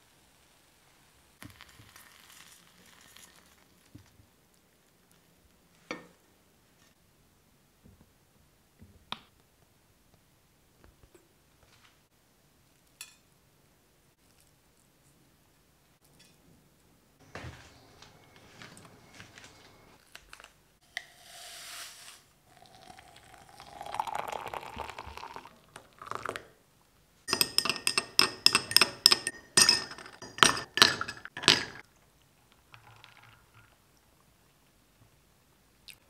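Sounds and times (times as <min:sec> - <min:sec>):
faint milk pouring: 0:01.4 - 0:04.0, 0:21.0 - 0:26.4, 0:32.2 - 0:34.0
coffee pouring into glass: 0:22.5 - 0:26.4, 0:32.6 - 0:33.8
ice cubes clinking in glass: 0:27.3 - 0:31.8.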